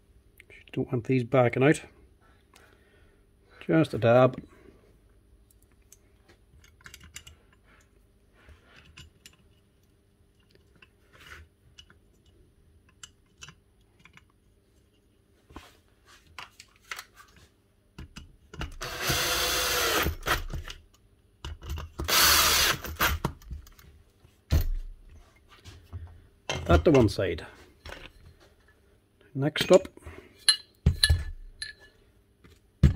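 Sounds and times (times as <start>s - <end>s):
cordless drill driving screws: 18.8s - 20.5s, 22.0s - 23.2s.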